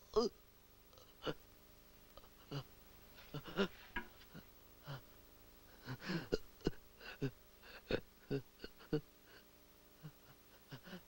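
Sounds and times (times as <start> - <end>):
person's breathy vocal sounds: 3.3 - 5.2, 7.0 - 11.0.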